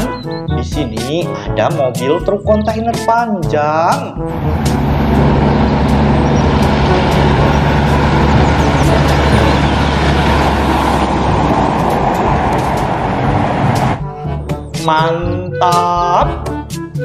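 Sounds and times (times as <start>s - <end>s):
truck engine droning: 4.1s - 17.0s.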